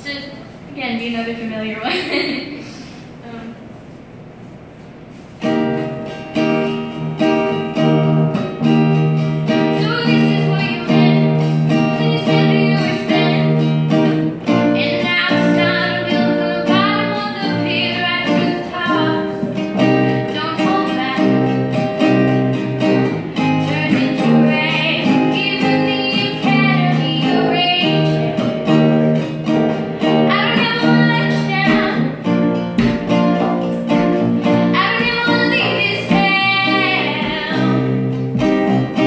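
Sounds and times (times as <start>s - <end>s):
acoustic guitars strumming: 3.9s - 39.0s
girl singing: 9.5s - 28.8s, 30.0s - 32.6s, 34.4s - 39.0s.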